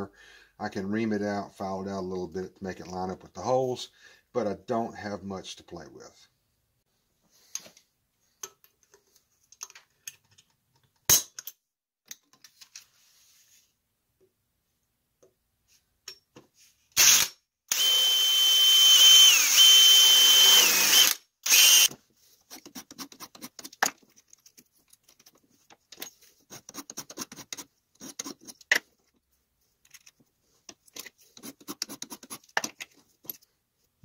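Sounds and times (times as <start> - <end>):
electric drill whining: 17.0 - 21.9
hand file rasping on metal: 22.4 - 23.8, 26.3 - 28.7, 31.2 - 32.6.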